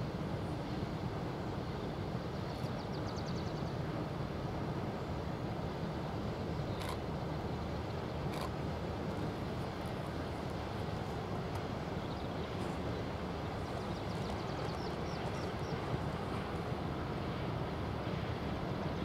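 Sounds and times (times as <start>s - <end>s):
distant freight train rumble: 7.9s - 19.0s.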